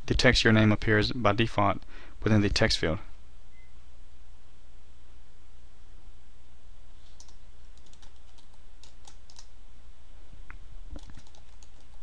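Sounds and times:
steady low hum: 0.0 - 12.0
computer keyboard typing: 7.2 - 9.5, 11.0 - 12.0.

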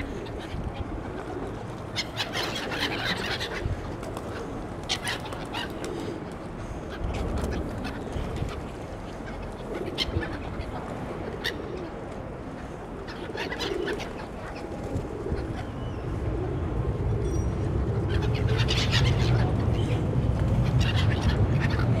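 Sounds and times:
gulls calling: 0.0 - 16.5.

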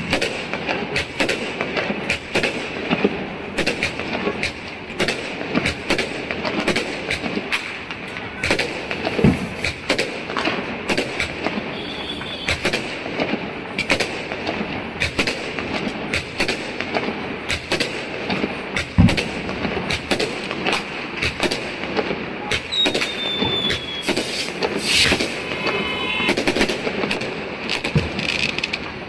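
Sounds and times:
fireworks bangs and cracks: 0.0 - 29.0
fireworks crackling: 0.0 - 29.0
high whistle sliding down: 22.7 - 24.2, 24.8 - 26.7.

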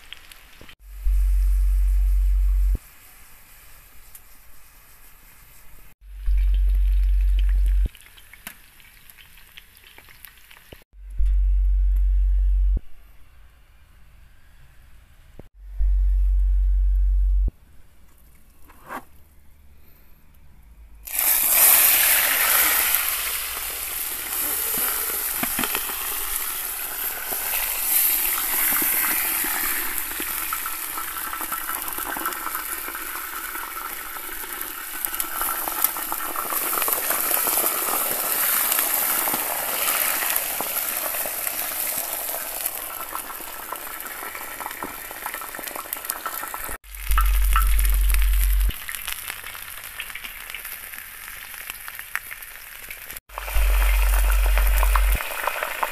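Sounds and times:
low rumble: 0.8 - 2.8, 6.0 - 7.9, 11.0 - 14.8, 15.5 - 17.6, 46.9 - 48.7, 53.3 - 55.2
meat sizzling in hot oil: 7.9 - 10.8, 21.1 - 55.9.

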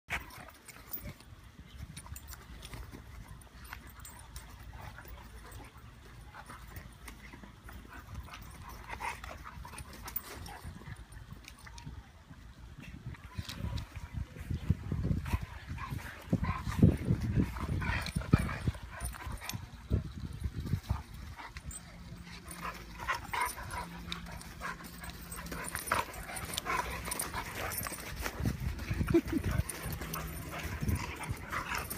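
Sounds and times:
dogs scuffling: 15.1 - 31.9.

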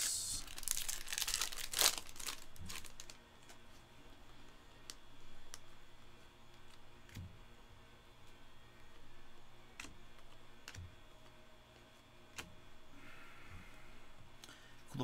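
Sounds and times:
cards rustling: 0.0 - 3.7.

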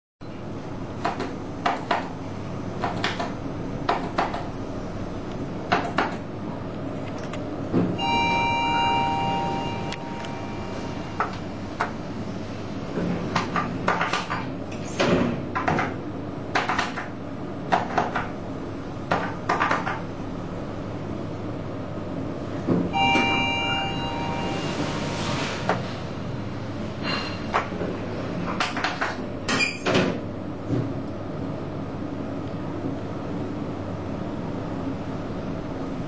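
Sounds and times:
elevator car hum: 0.2 - 36.0
elevator button clicks: 8.0 - 10.4
two-note electronic tone: 8.0 - 11.5, 23.0 - 25.2.

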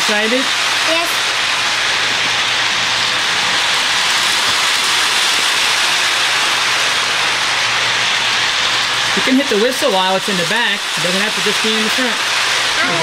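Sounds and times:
toy train whirring on track: 0.0 - 13.0.

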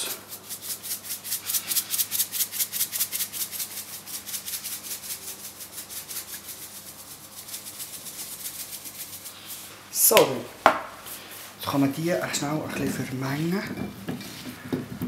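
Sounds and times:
salt rattling in plastic shaker: 0.0 - 10.4.

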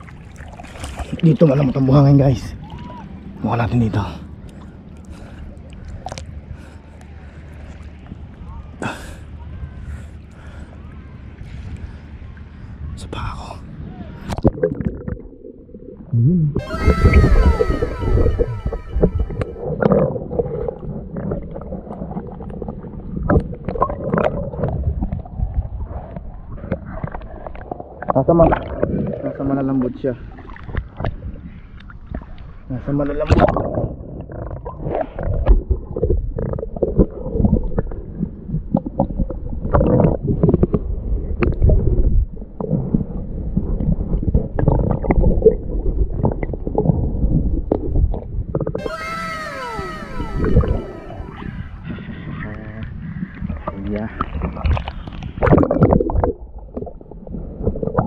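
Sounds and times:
underwater rumbling and gurgling: 14.4 - 16.6, 17.2 - 29.4, 33.4 - 48.8, 52.8 - 58.0.

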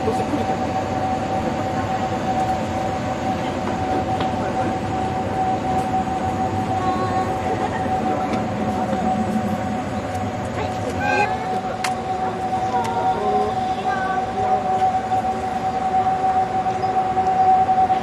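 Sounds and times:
constant high hum: 0.0 - 18.0
electric train running: 0.0 - 18.0.

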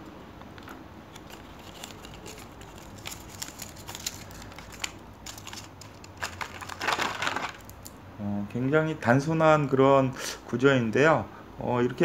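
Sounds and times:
plastic tray crackling: 0.5 - 7.9
paper leaflet crinkling: 0.6 - 7.9.

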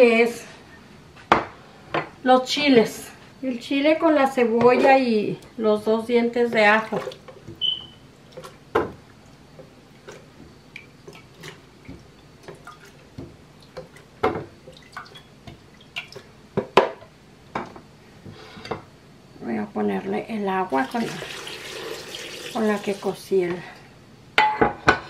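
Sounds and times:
water dripping: 10.1 - 16.3, 20.8 - 23.2.

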